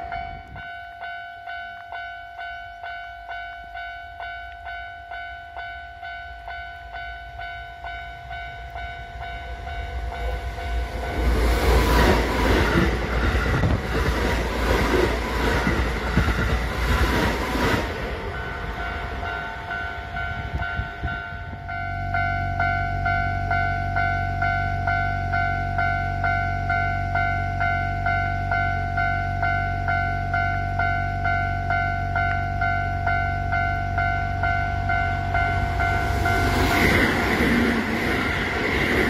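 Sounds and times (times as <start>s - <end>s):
train passing at speed: 0.0s - 39.0s
train wheels clacking on rail joints: 10.2s - 21.4s.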